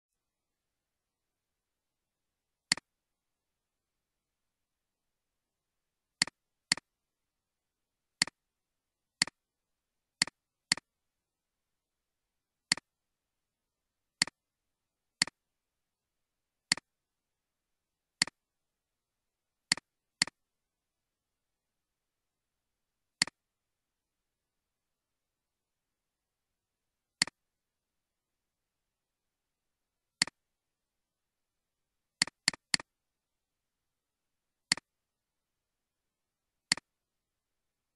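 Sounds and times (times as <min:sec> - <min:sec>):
computer mouse clicks: 0:02.7 - 0:02.9, 0:06.2 - 0:06.9, 0:10.2 - 0:10.9, 0:12.7 - 0:12.9, 0:16.7 - 0:16.9, 0:19.7 - 0:20.4, 0:23.2 - 0:23.4, 0:27.2 - 0:27.4, 0:30.2 - 0:30.4, 0:32.2 - 0:32.9, 0:34.7 - 0:34.9, 0:36.7 - 0:36.9.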